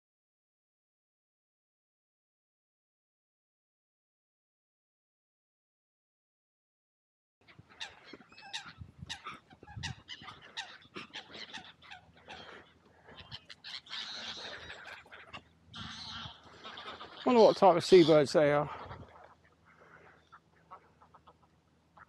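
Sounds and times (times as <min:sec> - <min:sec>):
geese honking: 0:07.4 - 0:22.0
waterbirds calling: 0:07.4 - 0:22.0.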